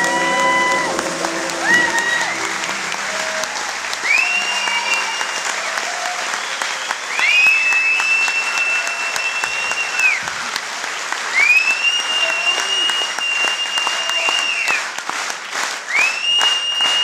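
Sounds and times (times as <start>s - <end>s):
audience applauding: 0.0s - 17.0s
high piercing whistles: 4.0s - 5.6s, 6.3s - 10.1s.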